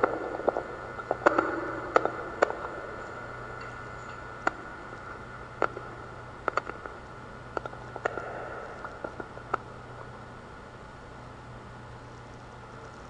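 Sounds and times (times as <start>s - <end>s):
steady low hum: 0.0s - 13.0s
small clicks and knocks: 3.6s - 9.6s.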